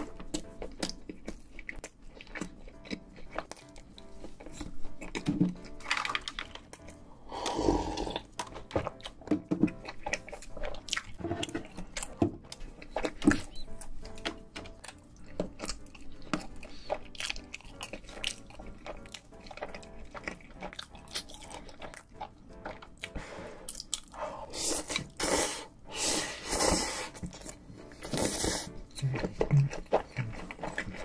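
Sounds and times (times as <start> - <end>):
chewing and wet mouth sounds: 0.0 - 31.0
light background music: 0.0 - 31.0
slurping noodles: 7.3 - 8.3, 24.2 - 28.8.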